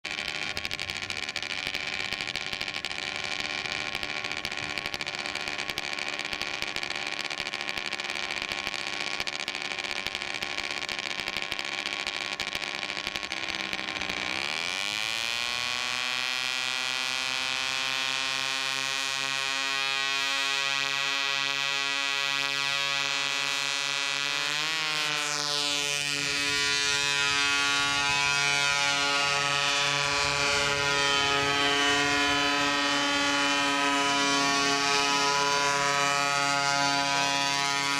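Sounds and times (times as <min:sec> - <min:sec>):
drone engines and rotors buzzing: 0:00.0 - 0:37.9.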